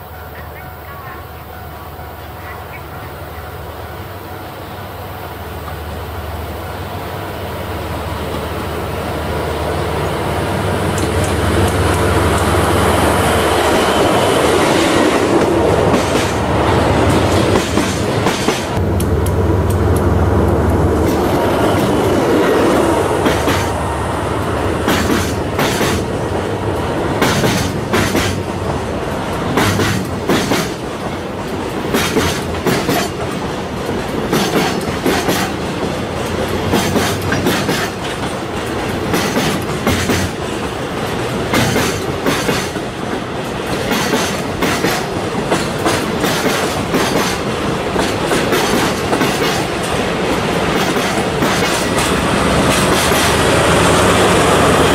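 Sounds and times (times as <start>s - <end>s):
train rolling rumble: 0.0s - 54.9s
train wheels clattering over rail joints: 17.1s - 18.8s, 21.0s - 23.8s, 24.8s - 26.4s, 27.1s - 53.5s.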